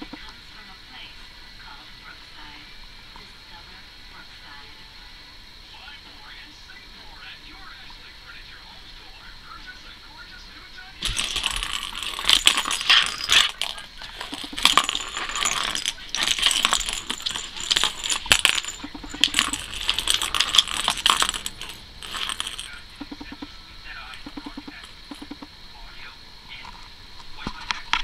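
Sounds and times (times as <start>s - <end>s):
ball rattling around plastic track: 11.0s - 23.5s.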